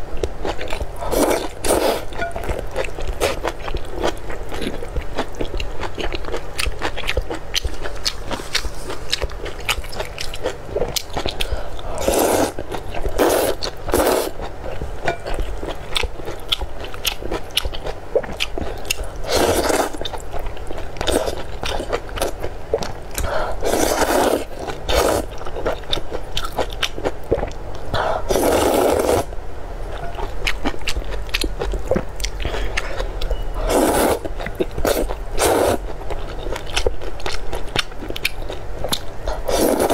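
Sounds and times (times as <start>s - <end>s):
wet chewing: 0.4s - 29.2s
noodle slurping: 1.0s - 2.2s, 11.9s - 14.4s, 19.2s - 20.0s, 23.3s - 25.3s, 28.0s - 29.3s, 33.6s - 35.8s, 39.3s - 39.9s.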